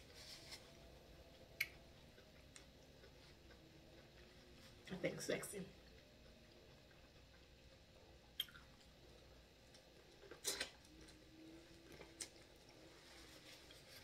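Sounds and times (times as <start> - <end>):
corn on the cob being chewed: 5.8 - 14.0.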